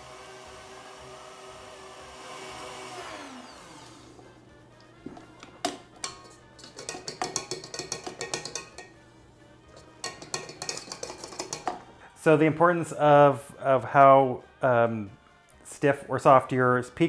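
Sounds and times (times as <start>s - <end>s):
stand mixer motor whining: 0.0s - 4.5s
whisk tapping metal bowl: 5.1s - 9.0s, 9.7s - 11.9s.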